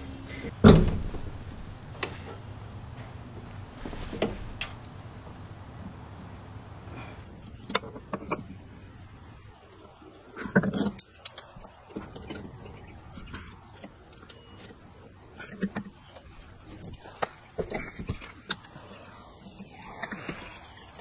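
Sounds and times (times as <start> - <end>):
low steady hum: 0.0 - 21.0
metallic clicks of brake lines: 9.7 - 21.0.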